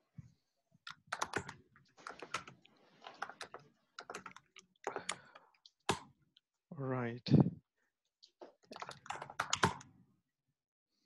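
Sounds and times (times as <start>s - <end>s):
faint keyboard typing: 0.8s - 6.1s, 8.2s - 9.9s.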